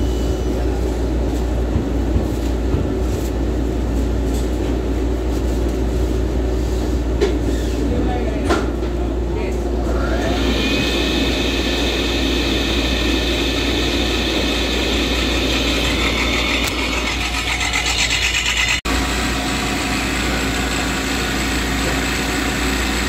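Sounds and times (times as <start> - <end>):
electric motor humming: 10.0 - 23.0.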